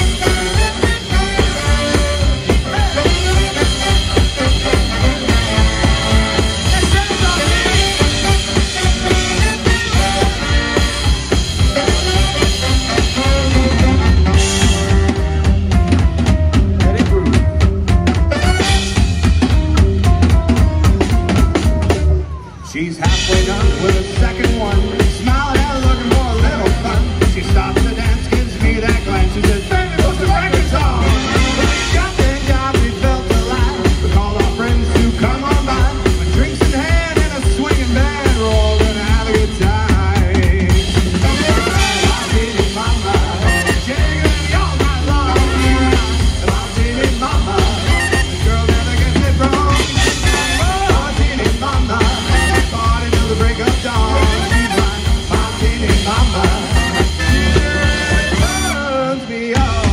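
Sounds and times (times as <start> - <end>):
drum kit beat: 0.0 - 59.9
swing band playing: 0.0 - 59.9.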